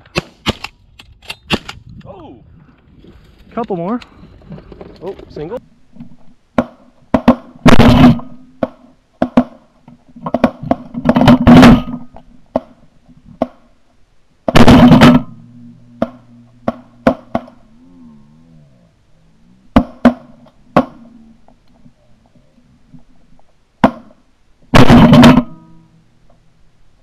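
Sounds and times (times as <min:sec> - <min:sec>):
shotgun blasts: 0:06.6 - 0:08.7, 0:14.5 - 0:15.4, 0:24.7 - 0:25.7
sharp cracks: 0:06.6 - 0:13.6, 0:14.4 - 0:15.4, 0:16.0 - 0:17.7.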